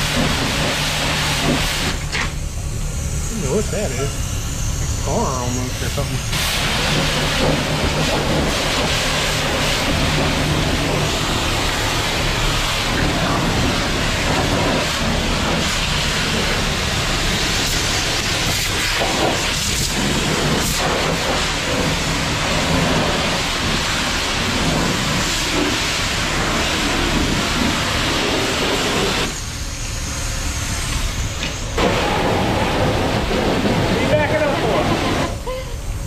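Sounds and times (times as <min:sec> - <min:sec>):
pressure washer spray hissing: 0:00.0 - 0:36.0.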